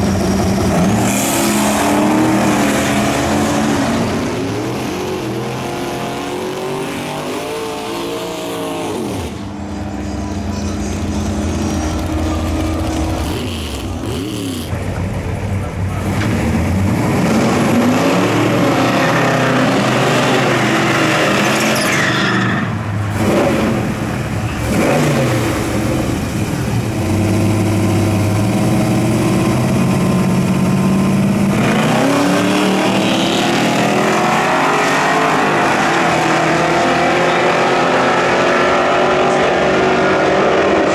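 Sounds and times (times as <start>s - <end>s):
car engines accelerating and revving: 0.0s - 40.9s.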